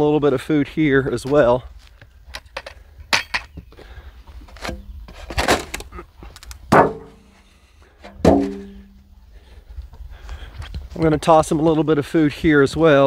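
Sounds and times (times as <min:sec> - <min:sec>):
ringing clanks: 0:08.1 - 0:09.0.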